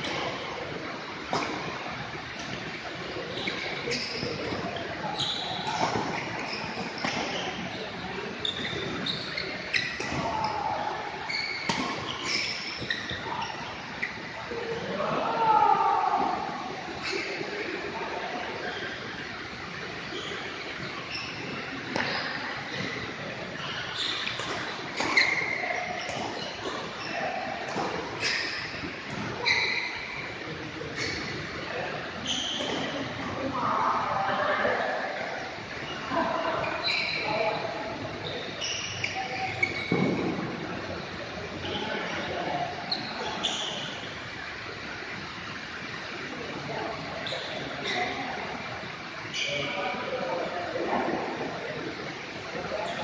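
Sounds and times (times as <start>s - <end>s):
shoes squeaking on court floor: 1.3s - 14.8s, 16.8s - 17.7s, 18.3s - 33.5s, 34.8s - 45.1s, 47.1s - 48.4s, 52.5s - 53.0s.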